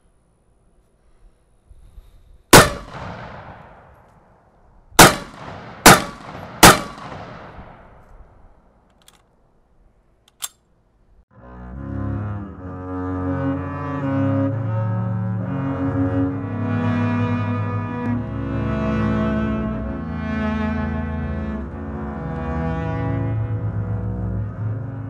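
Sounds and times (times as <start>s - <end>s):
rifle shots echoing: 2.5s - 4.4s, 5.0s - 8.1s.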